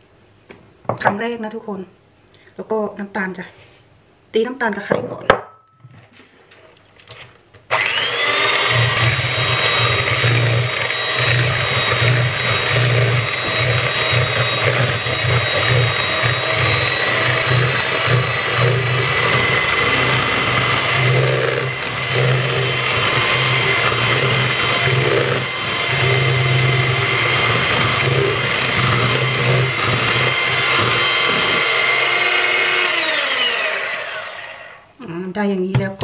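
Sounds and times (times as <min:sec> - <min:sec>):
electric hand mixer whirring: 0:07.7 - 0:34.8
mixer motor winding down: 0:07.7 - 0:34.8.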